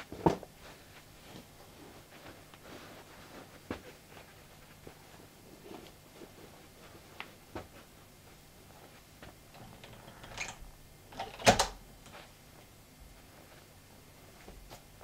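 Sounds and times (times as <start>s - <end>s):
shoes shuffling on carpet: 0.5s - 9.5s, 12.1s - 15.0s.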